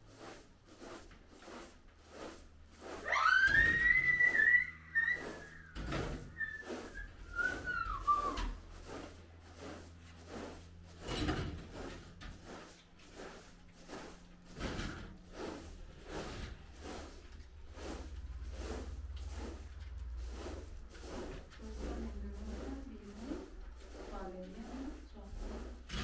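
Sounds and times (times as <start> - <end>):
broom sweeping carpet: 0.0 - 26.0
high whistle falling in pitch: 3.1 - 5.6.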